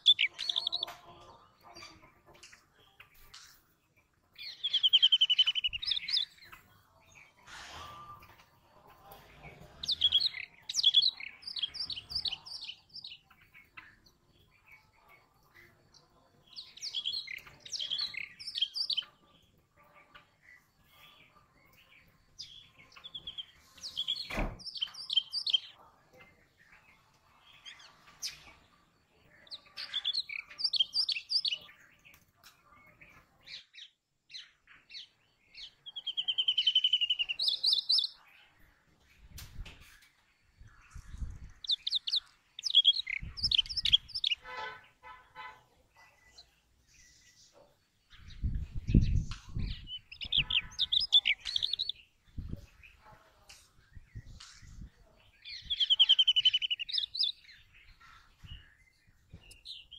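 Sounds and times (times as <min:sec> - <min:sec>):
bird rapid high chirps: 0:00.0 - 0:00.8, 0:04.4 - 0:06.5, 0:09.7 - 0:14.0, 0:16.4 - 0:19.2, 0:22.4 - 0:25.8, 0:29.3 - 0:31.7, 0:33.6 - 0:38.2, 0:40.6 - 0:45.6, 0:48.2 - 0:53.0, 0:54.2 - 0:58.8, 0:59.4 - 0:59.9.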